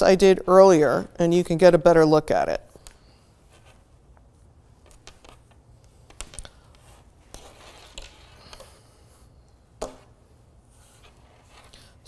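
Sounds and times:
fabric rubbing on tabletop: 0:03.4 - 0:04.5, 0:06.8 - 0:08.4, 0:10.6 - 0:11.7.

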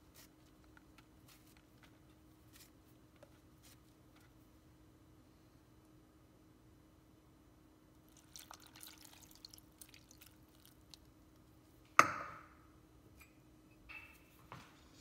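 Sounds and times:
water trickling and dripping: 0:08.1 - 0:11.1.

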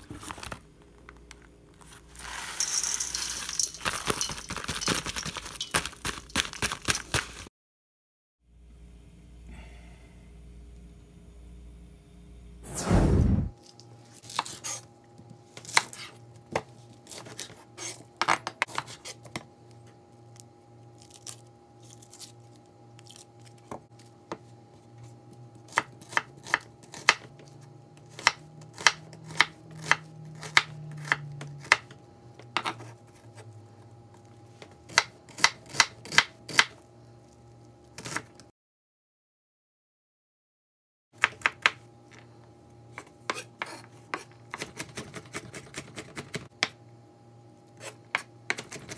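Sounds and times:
knife chopping on wooden board: 0:34.9 - 0:36.8.

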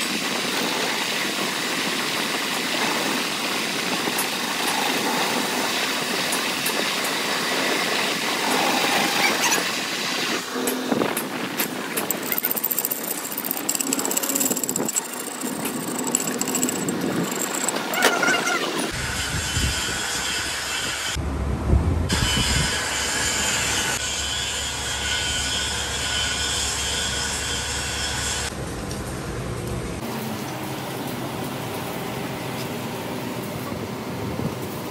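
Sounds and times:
scratchy clicking metal-working: 0:10.6 - 0:18.9.

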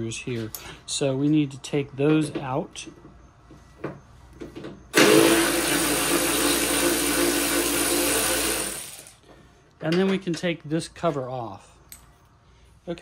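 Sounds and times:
electric ratchet running: 0:04.9 - 0:09.2.

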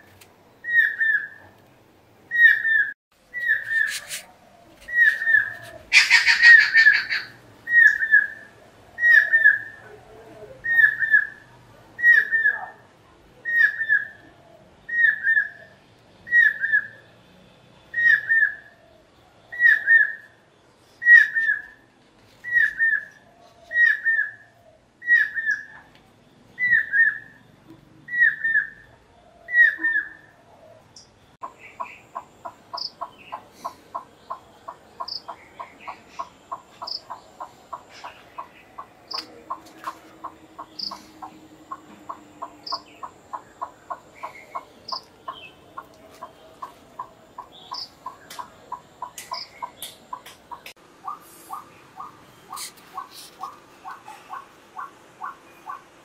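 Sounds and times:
harsh rasping bird call: 0:04.9 - 0:09.8.

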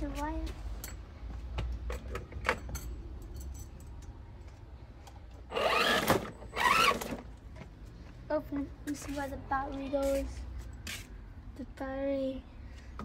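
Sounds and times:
small electric motor whirring: 0:05.5 - 0:07.2.

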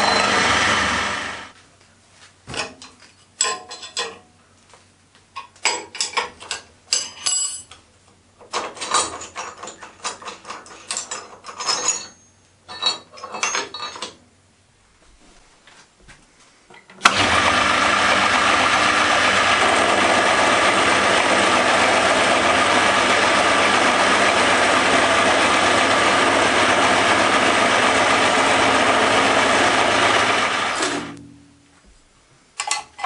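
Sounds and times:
milling machine cutting metal: 0:00.0 - 0:01.5, 0:17.0 - 0:31.1.

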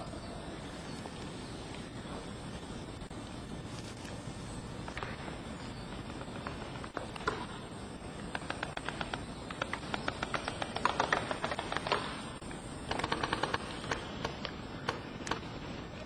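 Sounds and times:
airsoft guns firing bursts: 0:04.9 - 0:15.5.

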